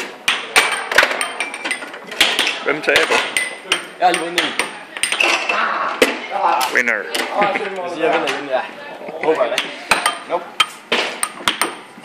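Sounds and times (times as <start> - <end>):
foosball ball knocking: 0.0 - 5.3, 9.6 - 11.9.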